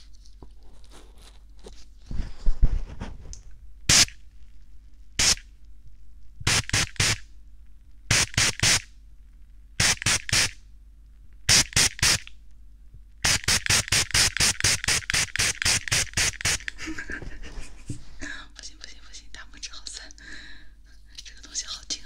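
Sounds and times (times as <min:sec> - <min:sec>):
spray bottle puffs: 0:03.9 - 0:04.1, 0:05.2 - 0:05.4, 0:06.5 - 0:07.2, 0:09.8 - 0:10.6, 0:13.2 - 0:16.8.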